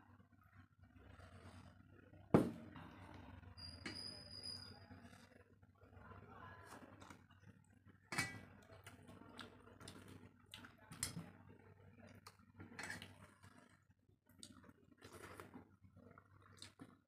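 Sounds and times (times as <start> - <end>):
quiet chewing: 6.7 - 17.0.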